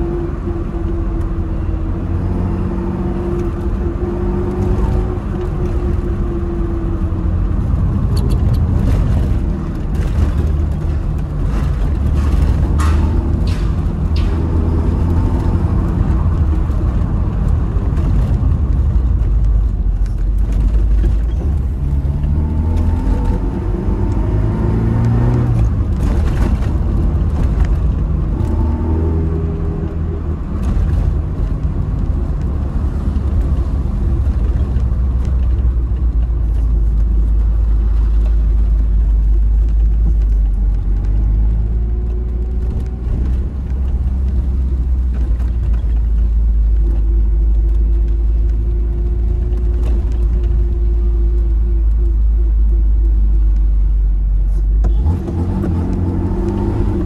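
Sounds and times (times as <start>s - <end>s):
car exhaust rumble: 0.0s - 57.0s
engine accelerating: 54.8s - 57.0s.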